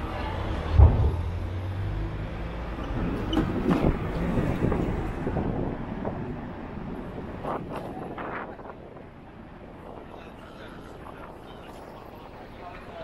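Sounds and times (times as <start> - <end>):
road traffic rumble: 0.0 - 13.0
sharp thump: 0.7 - 1.5.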